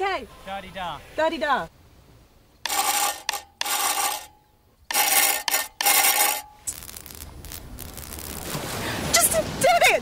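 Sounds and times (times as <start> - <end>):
spark bursts in morse code: 5.0 - 8.5.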